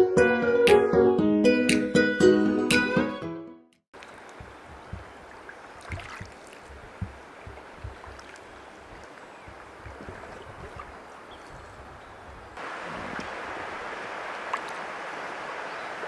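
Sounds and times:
moving water: 4.0 - 16.0
paddle working through water: 4.0 - 16.0
low thumps: 4.4 - 5.3, 5.9 - 8.2.

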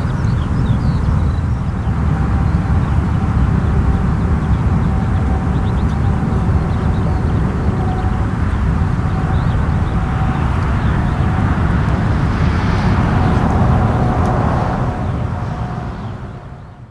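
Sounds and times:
turboprop aircraft rumble: 0.0 - 16.9.

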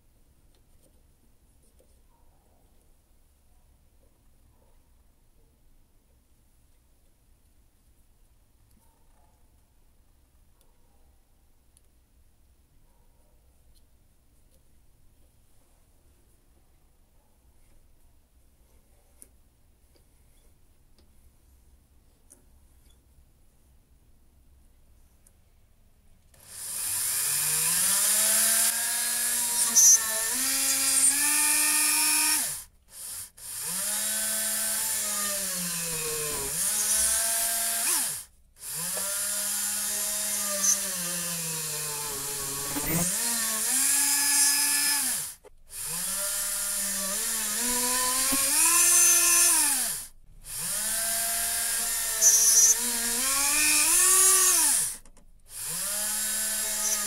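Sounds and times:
rotary tool whining: 26.4 - 57.0.

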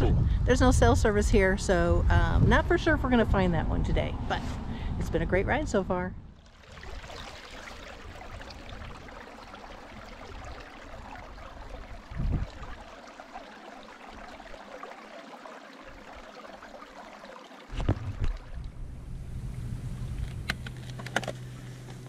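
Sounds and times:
creek water running over stones: 6.4 - 18.7
low thumps: 17.7 - 20.7.

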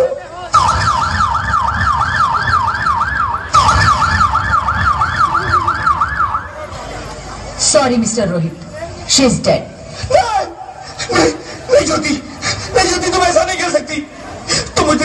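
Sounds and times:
siren yelping: 0.0 - 6.8.

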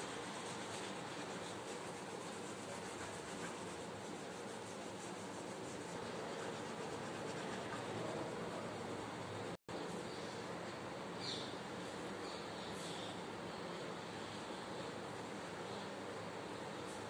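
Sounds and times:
hand rubbing on paper: 0.0 - 9.6.

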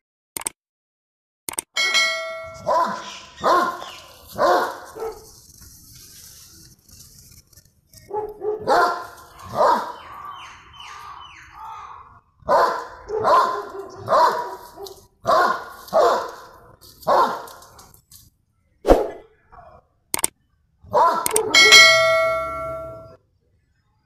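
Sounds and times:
sharp click: 0.4 - 0.6, 1.5 - 1.8, 20.2 - 20.4, 21.2 - 21.5
dogs barking: 2.4 - 5.4, 8.1 - 17.8, 20.8 - 23.1.

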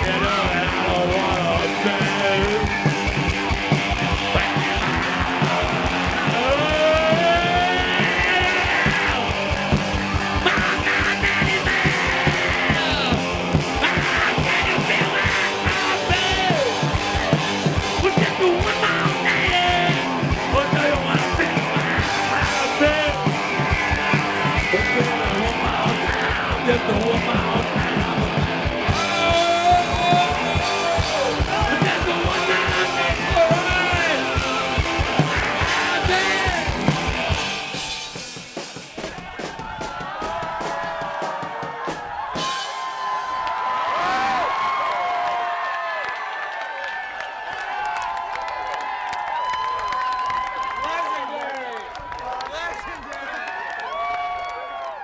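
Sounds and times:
electric guitars: 0.0 - 39.2
steady drum beat: 0.0 - 43.2.

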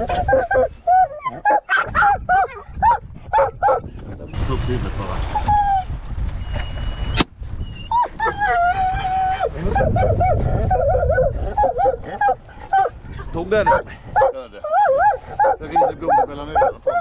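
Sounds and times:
dogs whining and yelping: 0.0 - 13.0, 13.6 - 17.0.

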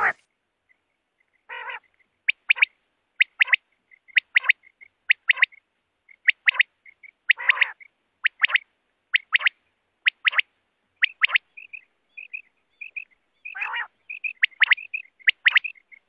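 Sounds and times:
quail singing three-note song: 0.0 - 0.2
faint soft bird notes: 0.0 - 16.0.

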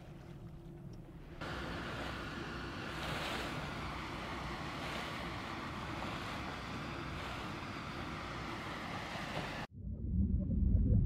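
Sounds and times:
sea and wind rushing: 1.1 - 9.7.

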